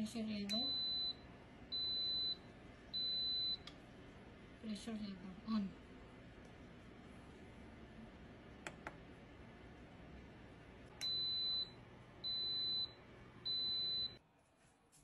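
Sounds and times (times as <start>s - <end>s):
pressure cooker beeping: 0.5s - 2.4s, 3.0s - 3.7s, 11.0s - 14.2s.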